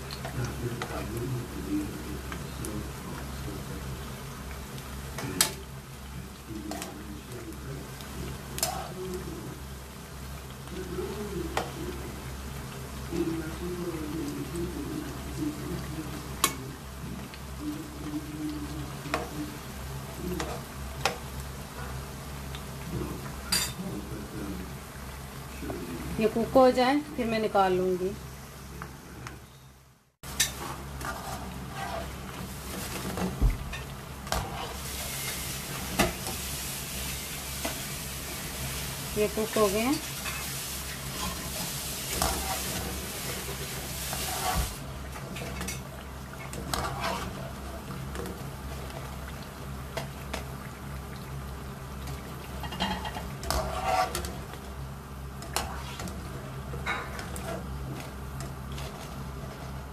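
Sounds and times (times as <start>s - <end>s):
food deep-frying in oil: 0.0s - 59.9s
wire skimmer scraping a wok: 8.6s - 9.0s, 30.4s - 36.4s, 39.2s - 44.8s, 46.5s - 47.7s, 52.6s - 54.5s, 55.4s - 58.1s.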